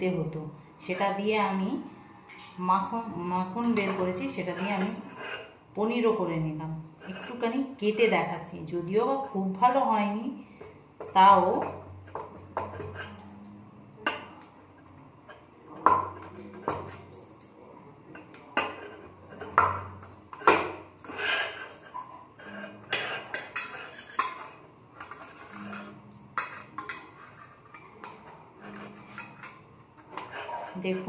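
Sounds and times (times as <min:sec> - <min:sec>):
knife scraping steel plate: 0:03.6 - 0:05.6, 0:07.0 - 0:08.2, 0:12.0 - 0:13.5, 0:18.2 - 0:31.0.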